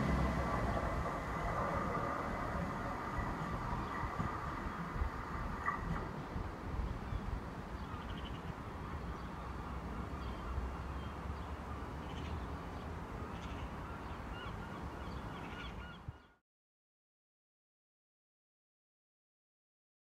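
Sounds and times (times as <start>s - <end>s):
distant diesel train rumble: 0.0s - 15.9s
faint bird calls: 13.3s - 16.4s.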